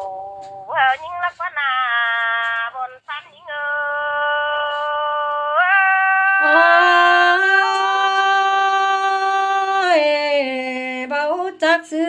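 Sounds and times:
woman singing a long held note: 0.0 - 0.7, 3.4 - 11.0.

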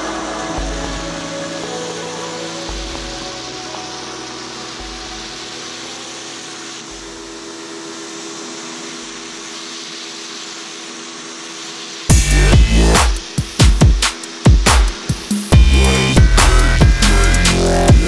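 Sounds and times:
electronic dance music: 0.0 - 6.7, 12.1 - 18.0
pressure washer running: 0.0 - 18.0.

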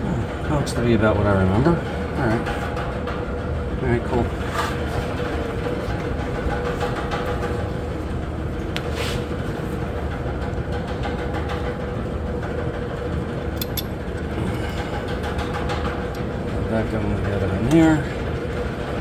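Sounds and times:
machinery drone: 0.0 - 19.0
light clicks of parts: 13.6 - 13.9.

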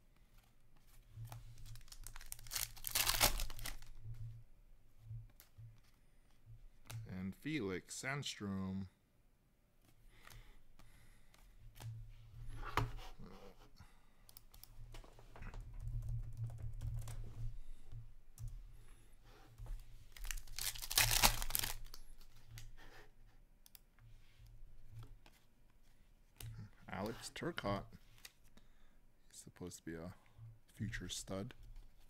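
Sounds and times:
cards clicking and rustling: 1.3 - 3.9, 20.1 - 22.3
wrapper tearing with crinkling: 1.7 - 3.9, 20.1 - 22.0.

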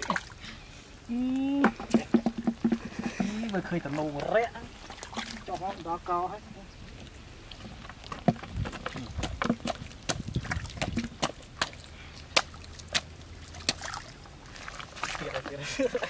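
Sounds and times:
hands splashing in muddy water: 8.0 - 15.6.

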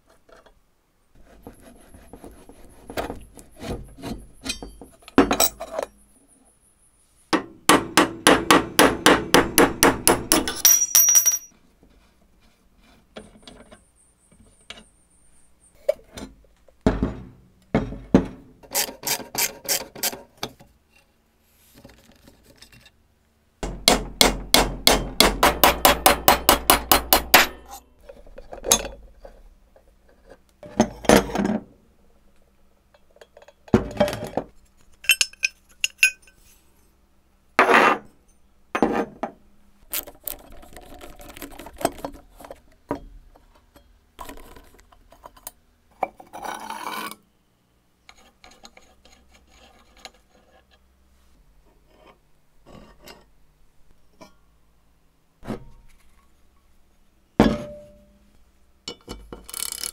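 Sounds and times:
metal parts scraping and clinking: 4.4 - 6.0, 10.4 - 11.6, 33.0 - 36.6, 58.9 - 59.9.

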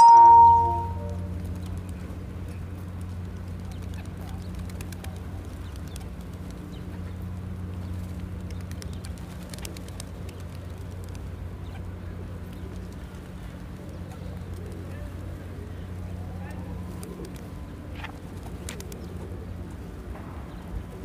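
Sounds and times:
wing flutters and clicks: 1.4 - 11.8, 16.8 - 19.4
pigeons cooing: 9.0 - 20.0.

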